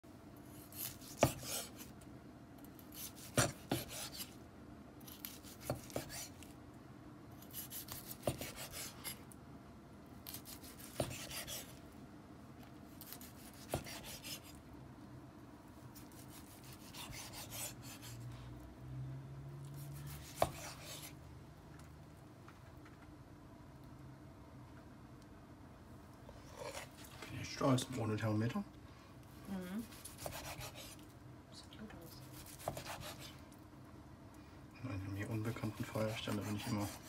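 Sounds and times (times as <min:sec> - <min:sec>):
knife rasping through steak: 0:00.6 - 0:01.9, 0:02.9 - 0:04.4, 0:05.1 - 0:06.4, 0:07.4 - 0:09.2, 0:10.3 - 0:11.7, 0:13.0 - 0:14.5, 0:16.0 - 0:18.2, 0:20.0 - 0:21.1, 0:29.9 - 0:31.0, 0:32.3 - 0:33.3, 0:35.5 - 0:37.0.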